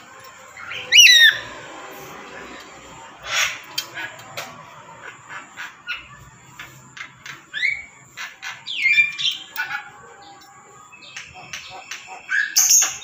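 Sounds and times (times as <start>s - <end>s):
parrot harsh squawks: 3.2s - 4.1s.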